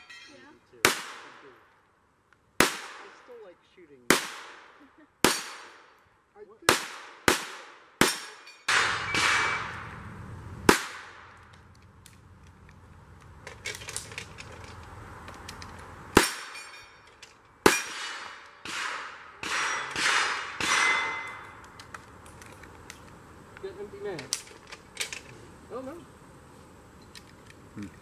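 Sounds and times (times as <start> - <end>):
pistol shots: 0.8 - 1.5, 2.6 - 3.3, 4.1 - 5.9, 6.7 - 9.9, 10.7 - 11.4, 17.6 - 21.5
steel target ringing: 8.1 - 10.0, 19.4 - 21.6.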